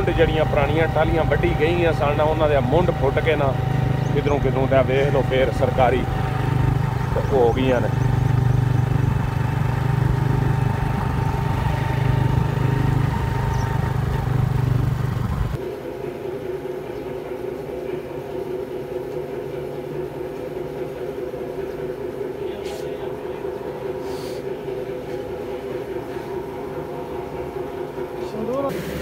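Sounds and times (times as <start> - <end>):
motorcycle engine running: 0.0 - 15.6
road and wind noise: 0.0 - 15.6
machine hum with tones: 0.0 - 29.0.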